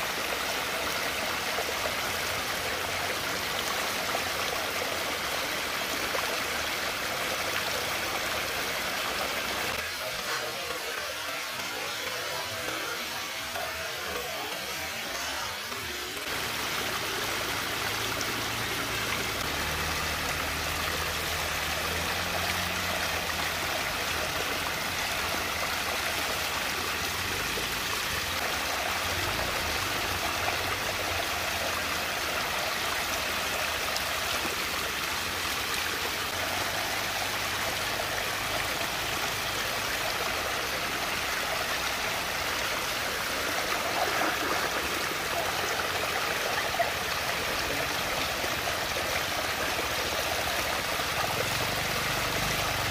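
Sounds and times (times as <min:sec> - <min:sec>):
water swirling and rushing: 0:15.2 - 0:52.9.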